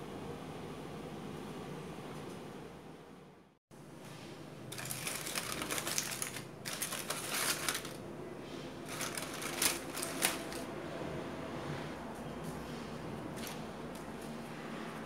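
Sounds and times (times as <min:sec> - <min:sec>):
aluminium foil crinkling: 0:04.7 - 0:08.0, 0:08.8 - 0:10.7
foil snapping: 0:04.8 - 0:08.0, 0:08.9 - 0:10.6.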